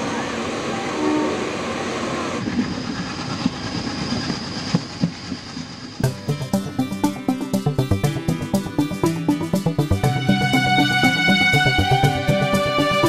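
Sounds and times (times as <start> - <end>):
train rumbling on track: 0.0 - 13.0
music: 6.0 - 13.0.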